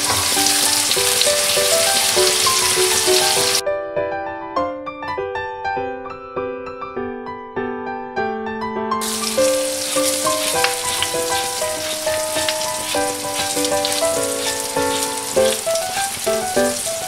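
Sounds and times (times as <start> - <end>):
beans sizzling in oil: 0.0 - 3.6, 9.0 - 17.0
piano music: 0.0 - 17.0.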